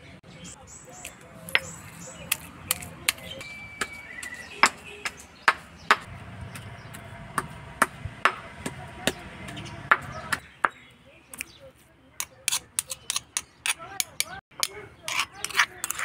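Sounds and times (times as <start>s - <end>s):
stone pestle pounding in mortar: 5.5s - 10.8s.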